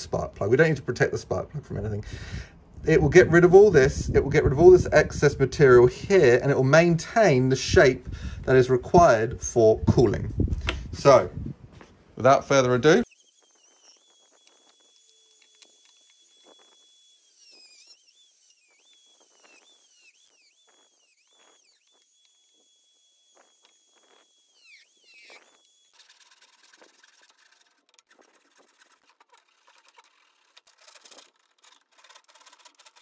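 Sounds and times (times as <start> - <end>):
rotary tool whine: 12.8 - 33.0
handsaw strokes through plastic: 13.0 - 33.0.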